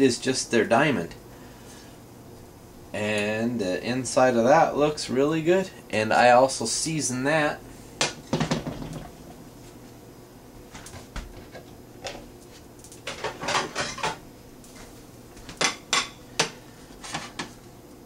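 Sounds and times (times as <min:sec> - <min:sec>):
dishes clinking on stove: 0:15.6 - 0:16.6.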